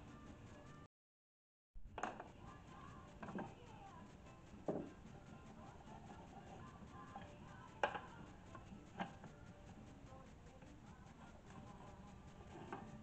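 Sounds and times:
plastic knocking on wood: 4.7s - 4.9s.

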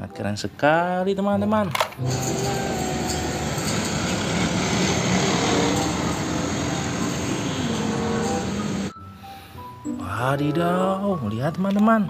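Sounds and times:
truck diesel engine: 2.0s - 8.9s
tyre and road noise: 2.0s - 8.9s.

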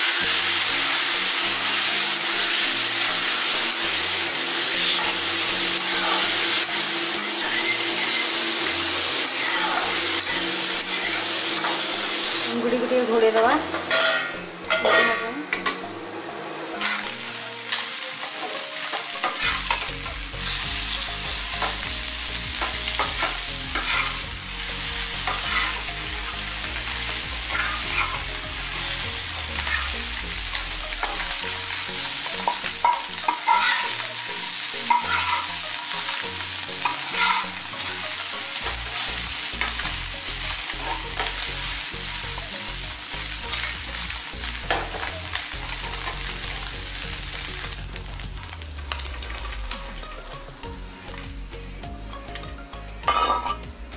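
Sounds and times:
fish sizzling in oil: 0.0s - 53.9s
spatula scraping a pan: 2.0s - 12.5s, 16.8s - 20.6s, 22.6s - 24.3s, 25.2s - 25.9s, 26.8s - 29.0s, 29.6s - 30.0s, 32.4s - 34.1s, 34.8s - 36.1s, 36.8s - 37.6s, 40.6s - 41.5s.

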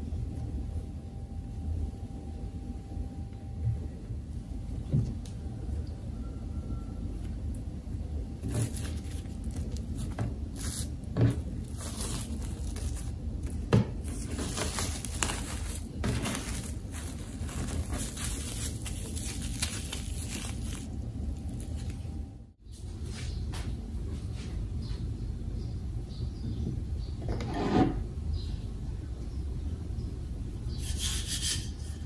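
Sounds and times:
steady low hum: 0.0s - 27.2s
scraping and rustling: 8.4s - 22.1s.

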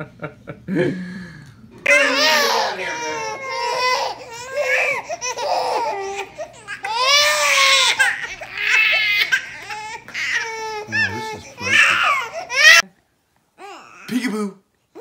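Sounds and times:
babies crying: 1.9s - 12.8s.

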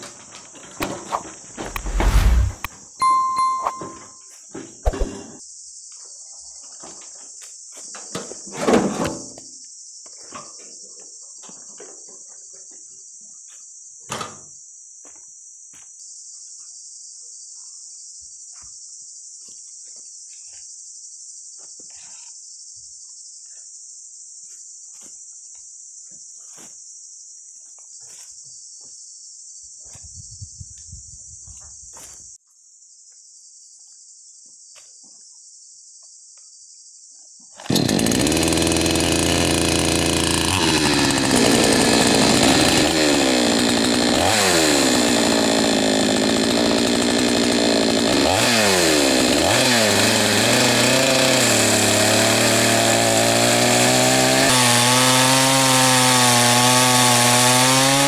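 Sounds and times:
insects chirring: 14.6s - 37.7s.

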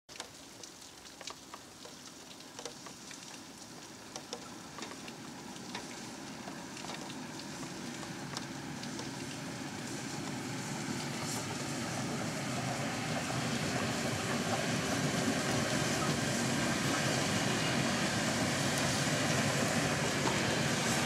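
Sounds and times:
raindrops pattering: 0.1s - 17.0s
steam train rumble: 5.1s - 21.0s.

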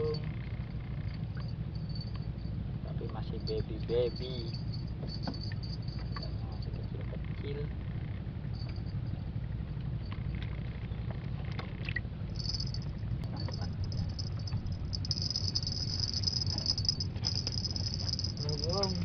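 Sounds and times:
low rumble: 0.5s - 19.0s
insects buzzing: 13.7s - 19.0s.

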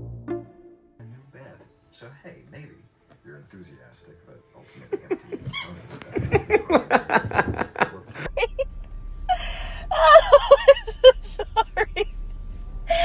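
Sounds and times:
person laughing breathily: 6.2s - 8.7s, 9.3s - 12.1s.

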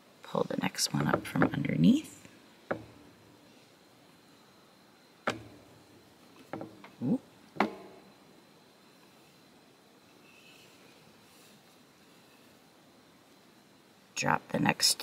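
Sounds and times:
loom clicks and taps: 5.2s - 8.0s.

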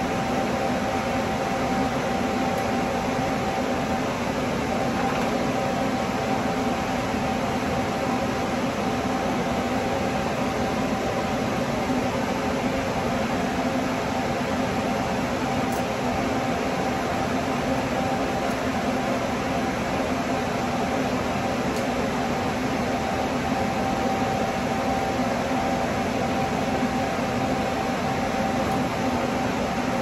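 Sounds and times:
fan humming: 0.0s - 30.0s.

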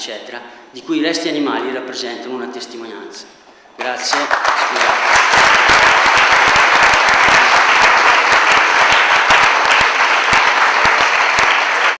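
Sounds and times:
audience applauding: 3.8s - 12.0s.

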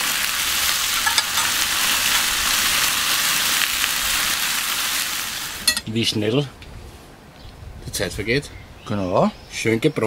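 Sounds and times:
steaks sizzling on a grill: 0.0s - 5.8s.

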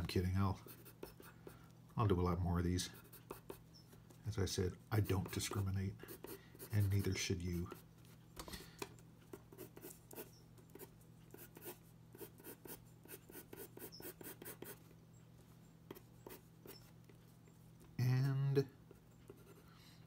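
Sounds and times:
pencil scratching on paper: 0.6s - 1.4s, 2.8s - 3.6s, 5.0s - 7.9s, 9.3s - 14.8s, 15.9s - 17.0s, 18.9s - 19.6s.

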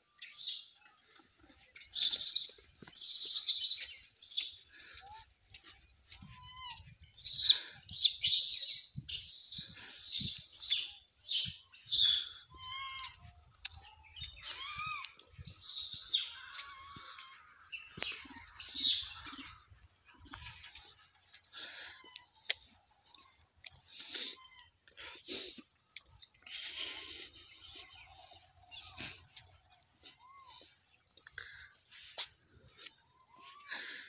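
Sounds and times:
harsh high-pitched bird calls: 0.1s - 21.4s.

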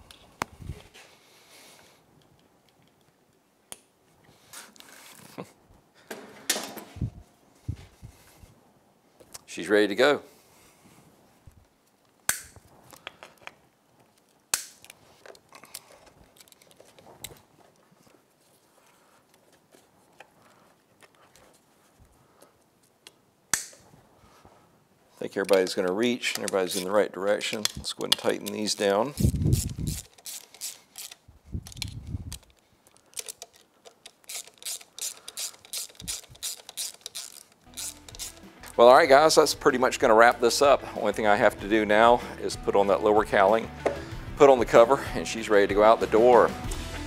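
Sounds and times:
plastic connectors clicking: 12.3s - 17.4s, 25.4s - 38.8s.

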